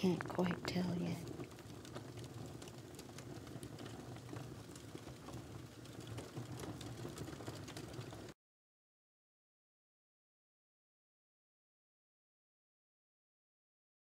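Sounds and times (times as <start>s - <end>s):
wood fire crackling: 0.0s - 8.4s.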